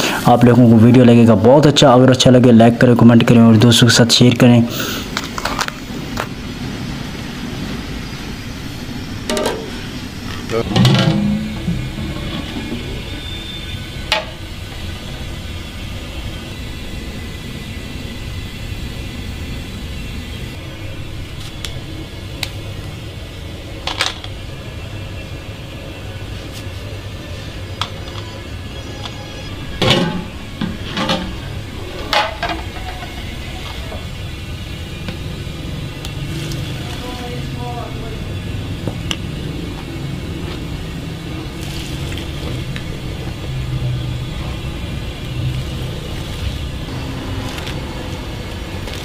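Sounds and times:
steady low hum: 0.0 - 49.0
broth pouring and splashing: 41.5 - 42.7, 45.0 - 49.0.

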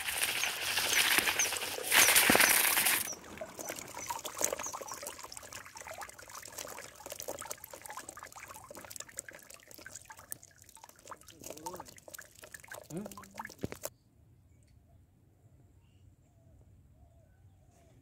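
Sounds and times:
small clicks and rustles: 0.0 - 5.1
water pouring into basket: 0.0 - 13.9
water trickling: 0.0 - 13.9.

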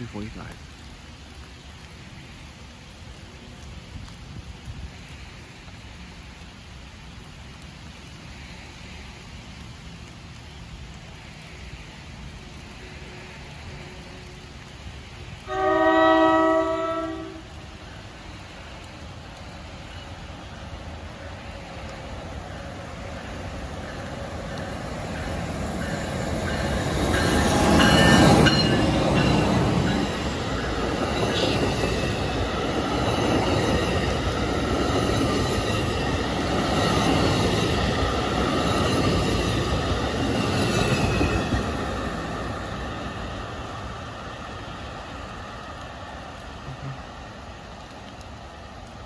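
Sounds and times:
diesel locomotive passing: 2.0 - 49.0
train wheels rolling: 16.4 - 46.4.

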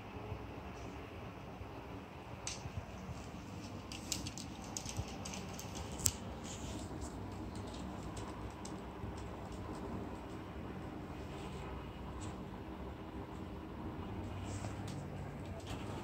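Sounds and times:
dog claws clicking on wood floor: 3.6 - 9.9.

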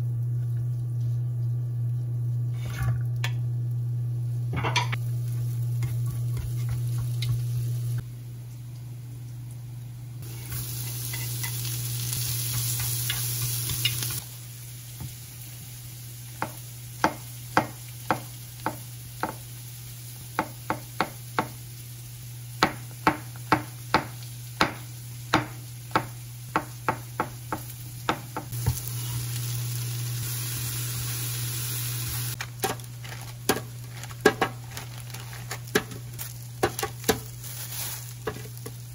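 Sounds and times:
food sizzling in butter: 10.2 - 38.9.

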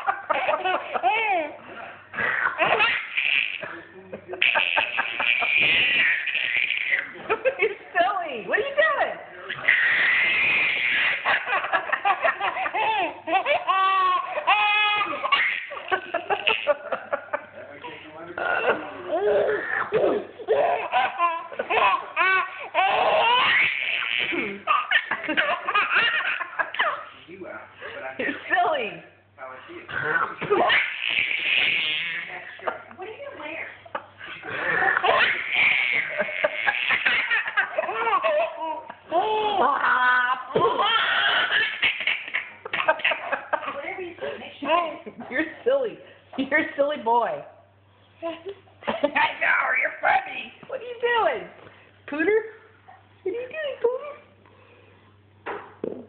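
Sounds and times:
baby giggling: 0.0 - 1.6, 2.2 - 3.8, 4.4 - 7.3, 9.5 - 17.3, 18.4 - 27.1, 30.1 - 32.8, 33.9 - 43.9.

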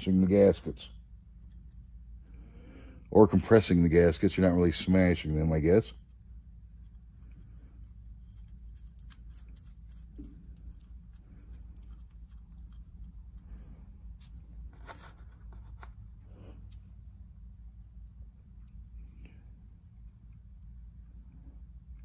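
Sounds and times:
metal nuts clicking and scraping: 6.8 - 13.7.

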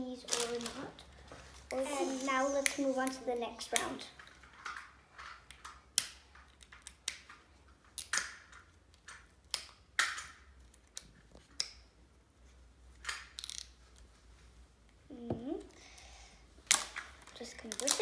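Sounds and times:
plastic wrapping crackling: 0.1 - 1.0.

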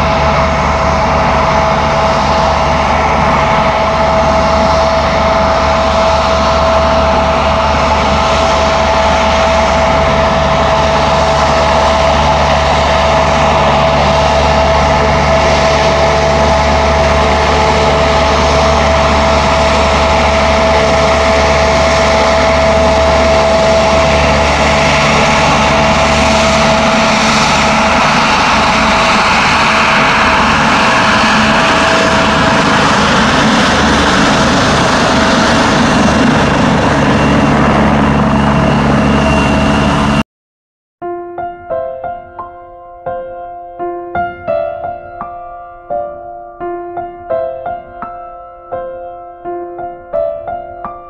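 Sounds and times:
jet engine high whine: 0.0 - 40.2
jet engine low rumble: 0.0 - 40.2.

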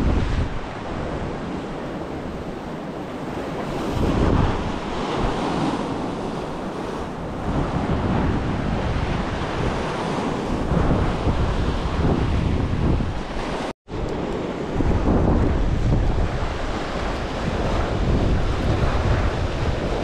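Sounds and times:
sea waves breaking: 0.0 - 20.0
wind buffeting microphone: 0.0 - 20.0.

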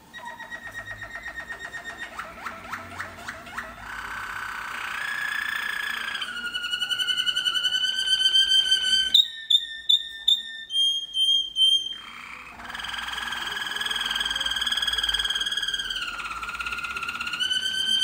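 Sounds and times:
canary trilling: 0.0 - 18.0.

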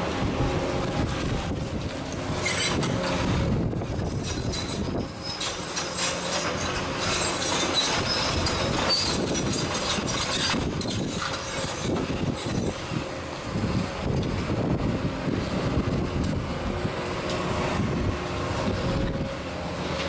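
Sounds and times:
excavator diesel engine running: 0.0 - 20.0
short squeals: 2.3 - 3.3, 4.2 - 12.8.

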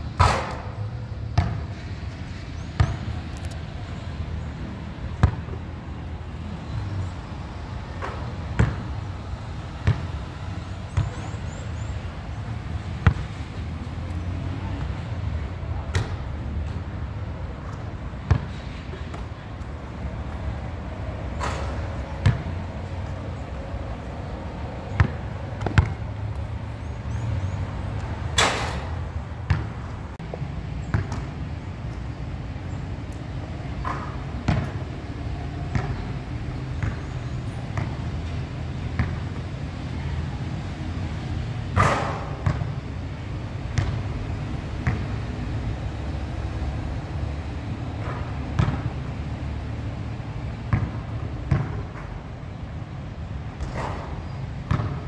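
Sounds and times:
basketball thudding on hard court: 48.6 - 48.9, 50.7 - 51.8.

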